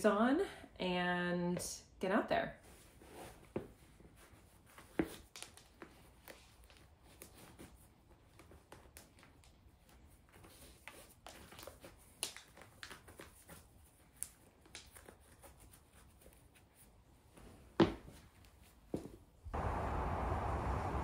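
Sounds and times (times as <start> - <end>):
rustling and tapping of shoes: 2.6 - 19.3.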